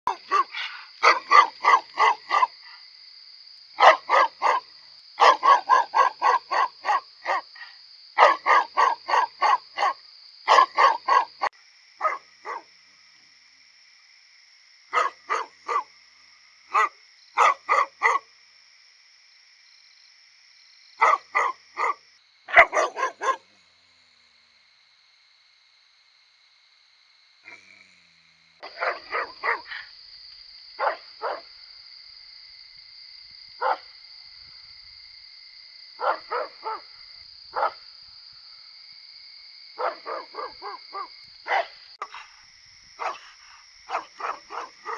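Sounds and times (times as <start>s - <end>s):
dog barking: 0.0s - 2.8s, 3.8s - 12.7s, 14.9s - 15.9s, 16.7s - 18.3s, 21.0s - 23.5s, 28.6s - 29.9s, 30.8s - 31.5s, 33.6s - 33.9s, 36.0s - 37.8s, 39.8s - 42.2s, 43.0s - 44.9s.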